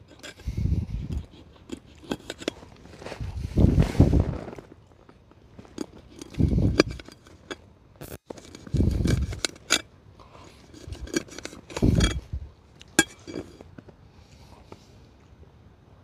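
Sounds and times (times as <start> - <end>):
utensils clicking and clinking: 1.2 - 2.6, 5.7 - 7.6, 8.3 - 9.8, 10.6 - 12.2.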